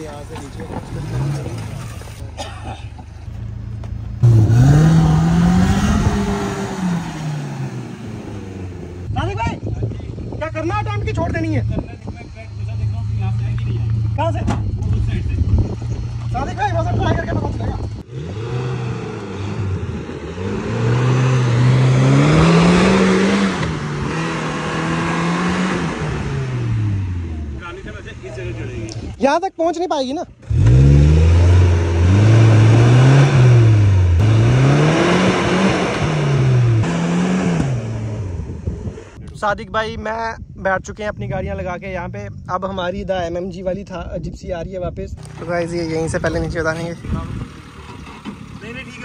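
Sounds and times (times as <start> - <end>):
car engine revving: 3.4 - 9.2, 11.3 - 29.1, 30.4 - 39.2, 45.2 - 49.0.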